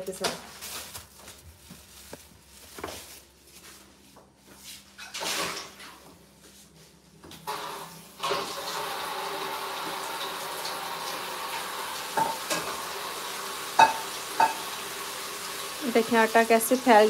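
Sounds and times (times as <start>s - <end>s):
food sizzling in pot: 7.5s - 17.0s.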